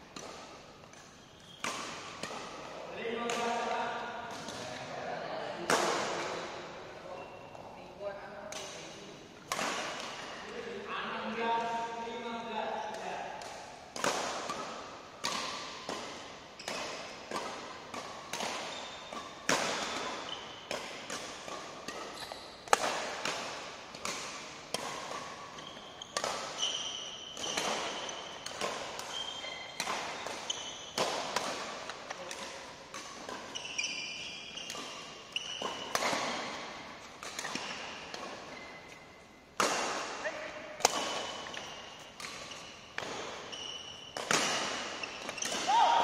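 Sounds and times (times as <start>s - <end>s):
rackets smacking shuttlecock: 0.1s - 4.8s, 8.5s - 10.7s, 12.9s - 46.0s
shoe squeaks on court floor: 0.9s - 1.7s, 18.6s - 19.2s, 20.2s - 20.7s, 22.0s - 22.6s, 25.5s - 28.5s, 29.1s - 31.0s, 33.4s - 36.4s, 38.5s - 39.2s, 41.1s - 45.7s.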